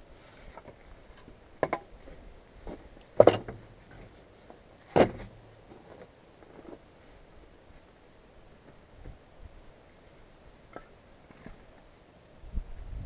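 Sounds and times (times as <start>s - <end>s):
firewood knocking on wood stack: 3.2s - 3.6s, 4.9s - 5.4s.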